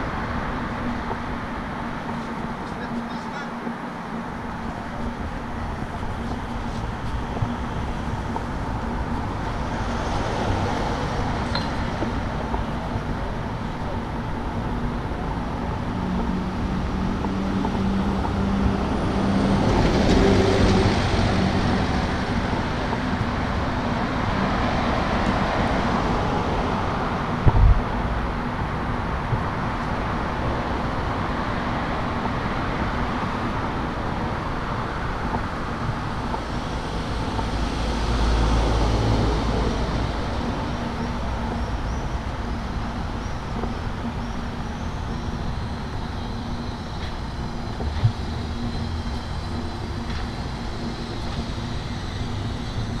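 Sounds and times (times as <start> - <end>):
cars driving past: 0.0 - 53.0
low thump: 27.4 - 27.8.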